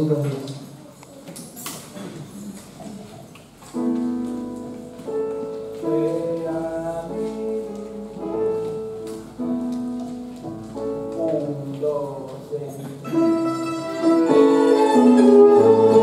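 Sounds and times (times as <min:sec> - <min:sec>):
faint room noise: 0:00.0 - 0:16.0
electronic keyboard playing a hymn: 0:03.8 - 0:16.0.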